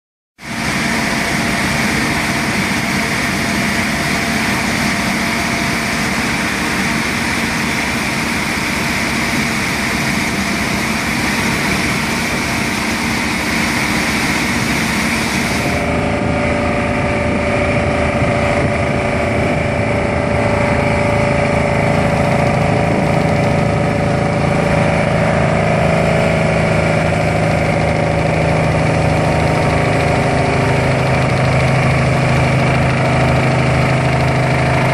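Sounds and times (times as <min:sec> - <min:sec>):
hydraulic power pack engine: 0:00.4 - 0:34.9
vibratory pile hammer drone: 0:00.4 - 0:34.9.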